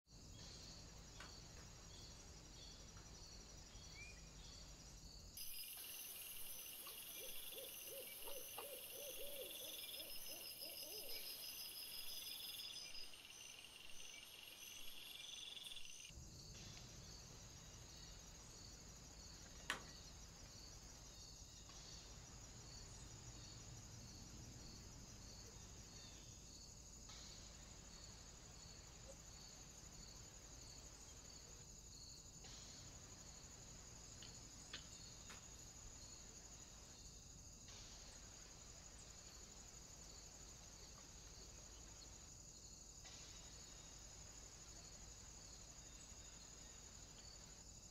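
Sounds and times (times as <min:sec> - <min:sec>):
insect chirring: 0:03.2 - 0:16.1.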